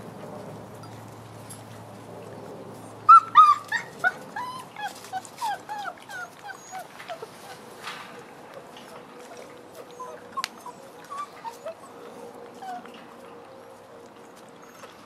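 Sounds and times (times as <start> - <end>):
puppy whimpering: 3.1 - 7.7, 9.8 - 13.0, 14.6 - 15.0.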